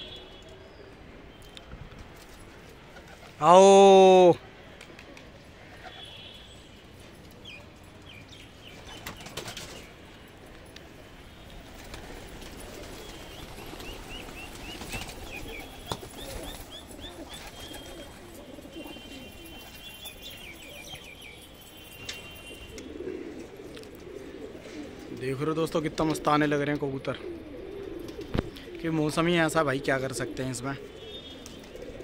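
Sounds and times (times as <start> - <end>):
pigeon wings flapping: 8.9 - 9.9, 11.6 - 20.1
pigeons cooing: 11.6 - 32.0.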